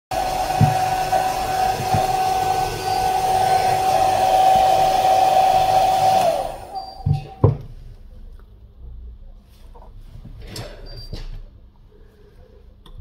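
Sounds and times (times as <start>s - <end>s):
hair dryer whining: 0.1s - 7.0s.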